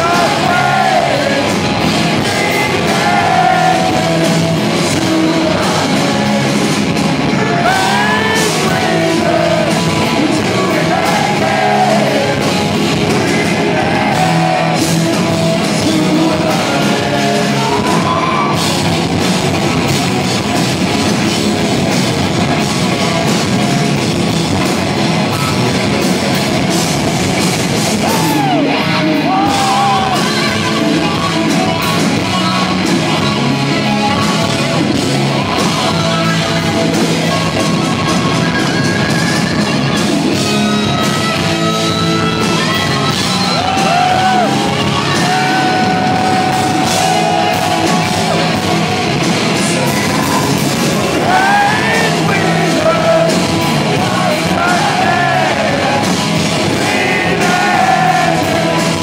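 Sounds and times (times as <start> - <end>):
live hard rock band: 0.0 - 59.0
man singing: 2.2 - 18.4, 49.5 - 56.1.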